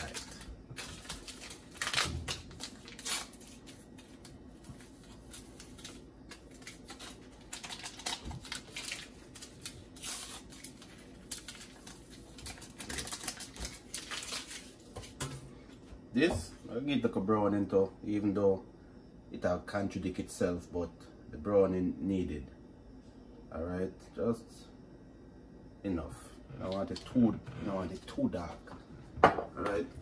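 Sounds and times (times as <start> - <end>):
seasoning packets crinkling: 0.0 - 4.3, 4.9 - 15.2.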